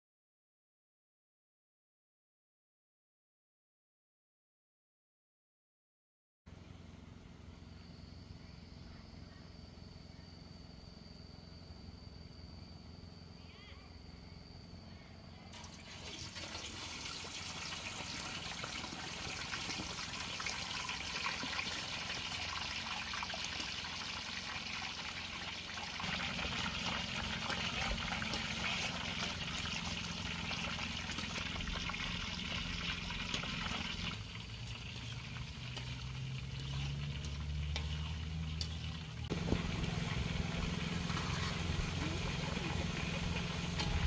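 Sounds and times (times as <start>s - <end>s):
fish sizzling in hot oil: 15.6s - 44.0s
low hum: 19.4s - 44.0s.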